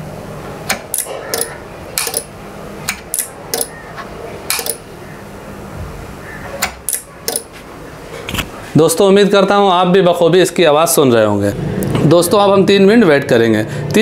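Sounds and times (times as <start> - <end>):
low electrical hum: 0.0 - 14.0
switch and relays clicking: 0.7 - 2.3, 2.9 - 3.8, 4.5 - 4.9, 6.6 - 7.5.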